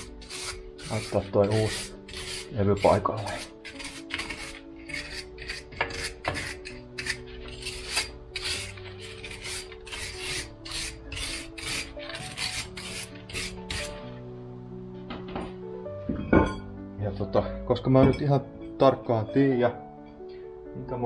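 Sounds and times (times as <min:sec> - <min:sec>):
rust scraping off metal: 0:00.0 - 0:14.1.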